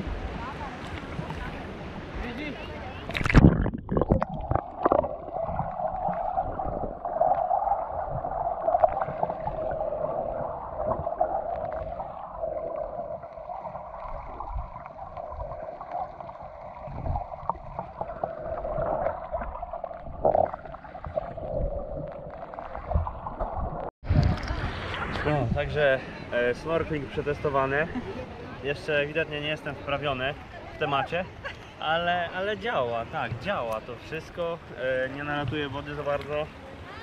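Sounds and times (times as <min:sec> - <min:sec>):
underwater water hum: 0:00.0 - 0:25.2
gurgling: 0:03.1 - 0:23.9.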